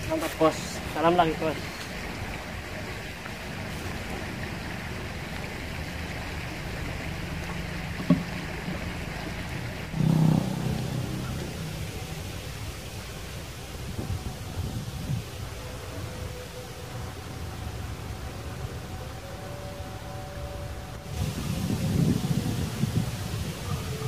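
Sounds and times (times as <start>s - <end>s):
flowing river water: 0.0s - 24.0s
low rumble: 9.8s - 14.2s.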